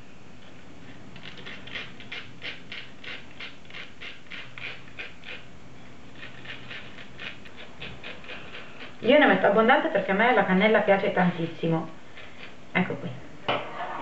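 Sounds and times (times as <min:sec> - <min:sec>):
cinnamon stick scraping on grater: 0:01.2 - 0:05.5, 0:06.2 - 0:09.4.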